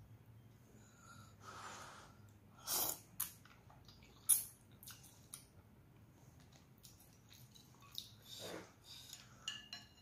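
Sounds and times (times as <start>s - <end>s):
person slurping noodles: 2.6s - 3.1s.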